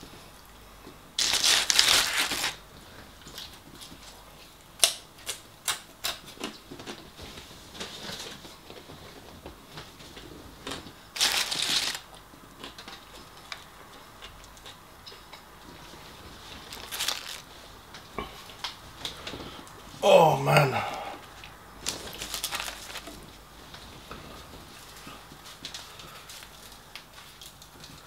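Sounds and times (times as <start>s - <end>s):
paper wrapping rustling: 1.2s - 2.6s, 11.2s - 12.1s, 16.6s - 17.5s, 21.8s - 23.2s.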